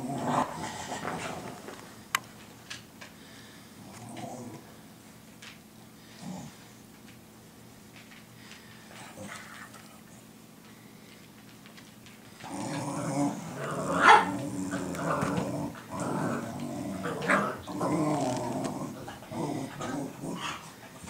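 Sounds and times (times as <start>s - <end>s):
dogs growling and barking: 0.0s - 2.1s, 3.7s - 4.8s, 6.0s - 6.7s, 12.3s - 21.0s.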